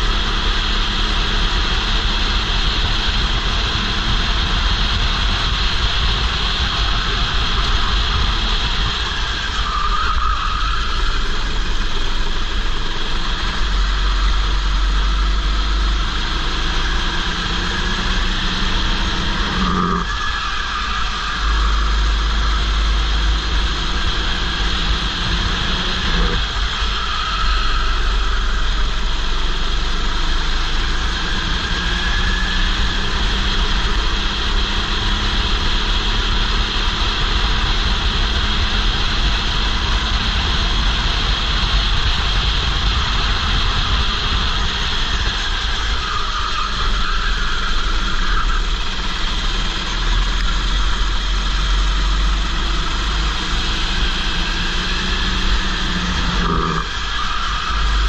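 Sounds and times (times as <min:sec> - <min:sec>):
go-kart engine running: 0:00.0 - 0:58.0
wind rumble on microphone: 0:01.3 - 0:09.7, 0:21.7 - 0:46.2.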